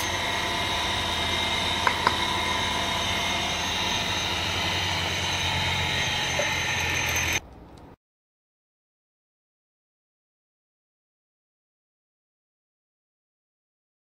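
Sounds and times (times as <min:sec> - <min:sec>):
sanding drum motor humming: 0:00.0 - 0:07.4.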